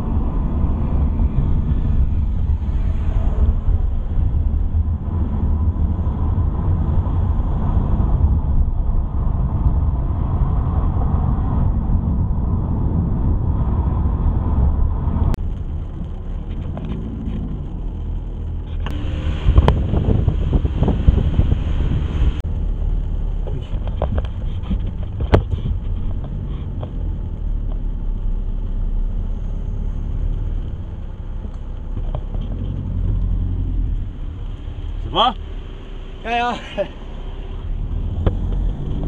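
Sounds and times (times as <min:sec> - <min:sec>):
car engine and tyre rumble: 0:00.0 - 0:39.0.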